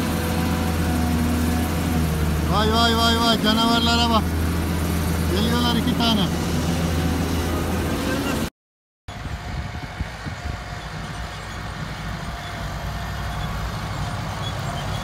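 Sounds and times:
diesel engine humming: 0.0 - 8.5, 9.1 - 15.0
tractor engine under load: 9.2 - 15.0.

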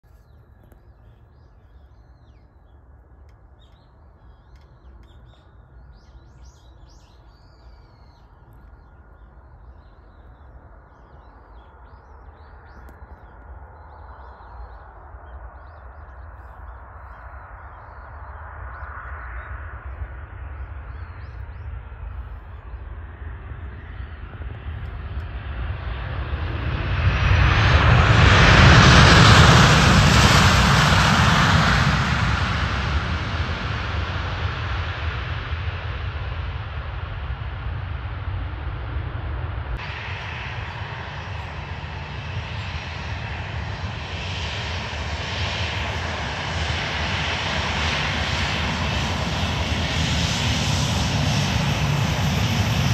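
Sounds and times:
jet engine approaching: 0.1 - 52.9.

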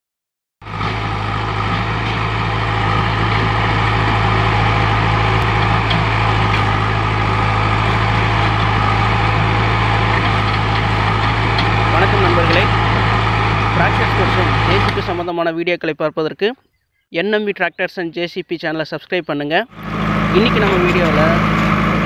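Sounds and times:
backhoe arm digging: 0.6 - 15.3, 19.7 - 22.0
diesel engine running: 0.6 - 15.3, 19.7 - 22.0.

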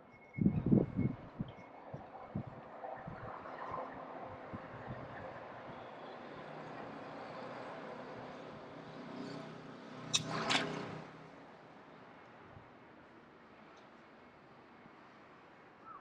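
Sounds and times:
sharp click: 10.1 - 10.8.

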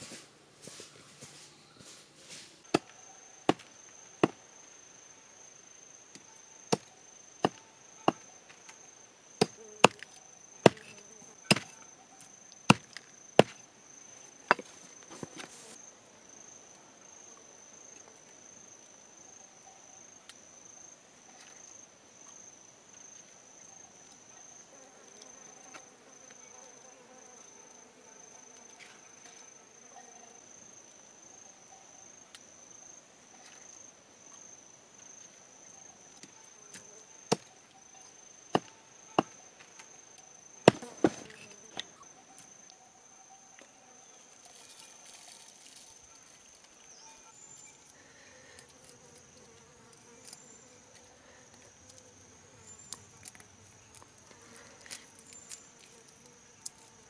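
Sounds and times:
hatchet chopping wood: 2.7 - 4.4, 6.7 - 8.2, 9.4 - 11.7, 12.7 - 13.6, 14.5 - 14.7, 36.7 - 37.5, 38.5 - 39.4, 40.6 - 41.9
high-pitched insect trill: 28.2 - 54.0.

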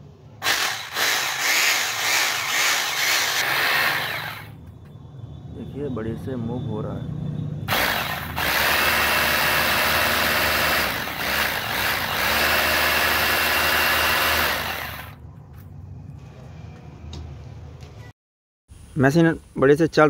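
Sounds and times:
drill motor spinning freely: 0.4 - 4.6, 7.7 - 15.2.

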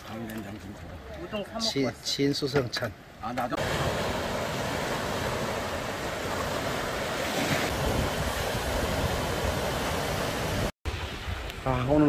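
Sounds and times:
waves washing over rocks: 3.6 - 11.3.

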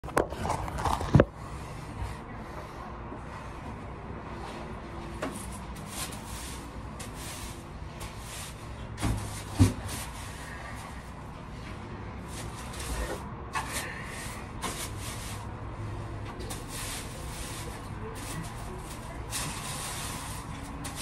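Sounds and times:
dull thumps: 9.0 - 10.2.

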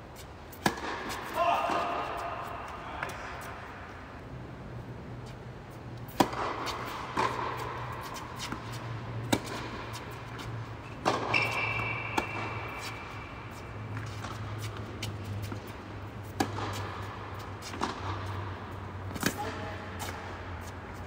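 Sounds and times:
tennis ball bouncing: 0.5 - 3.3, 6.0 - 21.0
tennis racquet hits: 0.5 - 3.6, 6.0 - 21.0
brief high squeak: 11.3 - 12.5.

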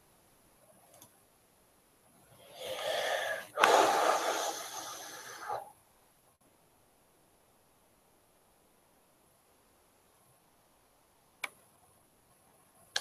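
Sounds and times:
person breathing heavily: 2.4 - 5.7.

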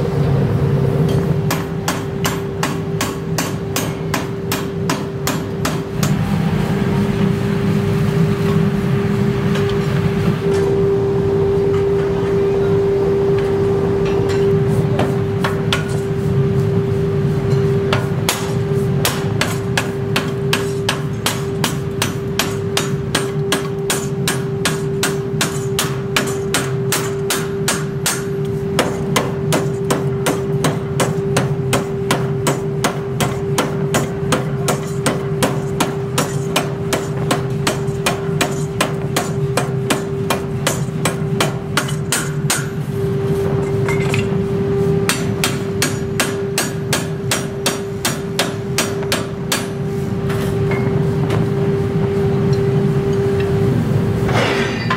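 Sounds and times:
machine hum: 0.0 - 54.9
power hammer pounding steel: 1.1 - 6.6, 17.5 - 42.8, 45.1 - 49.8.

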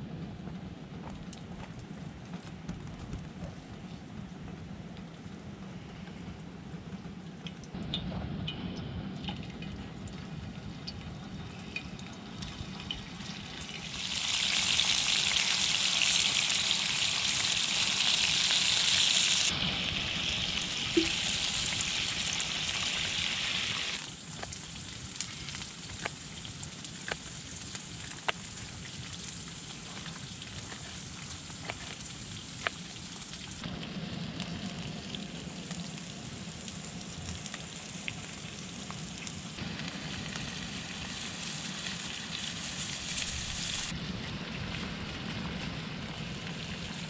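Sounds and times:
meat sizzling in hot oil: 12.2 - 43.9.

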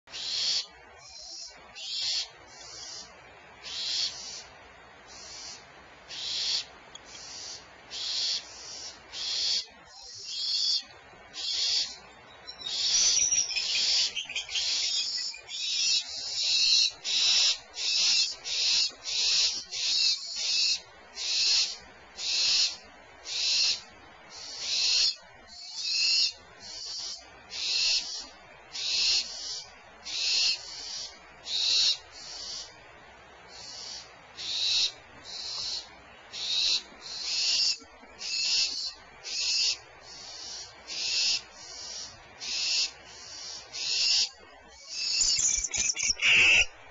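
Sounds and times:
barn owls hissing calls: 0.1 - 4.5, 5.1 - 12.0, 12.6 - 32.8, 33.5 - 46.7.

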